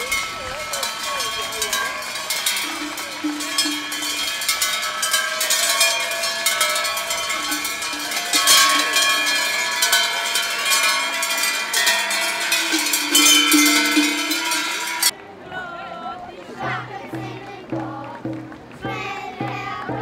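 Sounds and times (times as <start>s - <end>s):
cowbells clanging: 0.0s - 15.2s.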